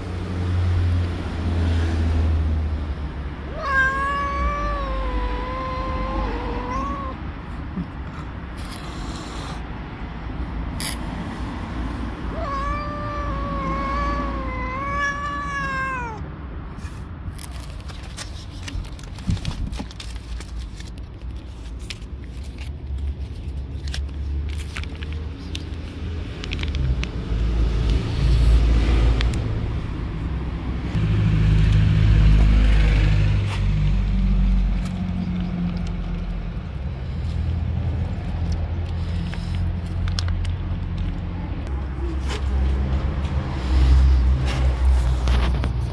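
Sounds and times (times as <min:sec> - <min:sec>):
cat meowing: 0:03.5 - 0:07.3, 0:12.3 - 0:16.3
plastic pouch crinkling and tearing: 0:17.3 - 0:27.2.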